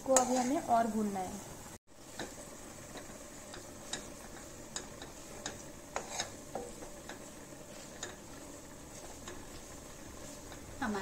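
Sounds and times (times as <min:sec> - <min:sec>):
metal ladle scraping a metal pan: 0:00.0 - 0:00.7, 0:03.9 - 0:06.9.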